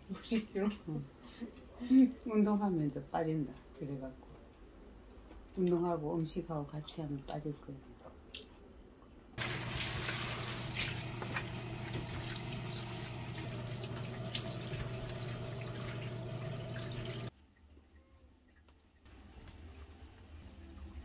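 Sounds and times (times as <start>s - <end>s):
tap running into sink: 9.4s - 17.3s.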